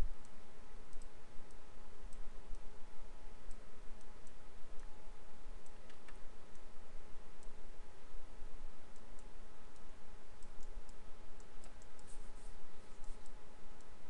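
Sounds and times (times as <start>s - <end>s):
low hum: 0.0s - 14.0s
microphone hiss: 0.0s - 14.0s
computer mouse clicking: 0.9s - 2.6s, 5.6s - 6.7s, 8.9s - 13.9s.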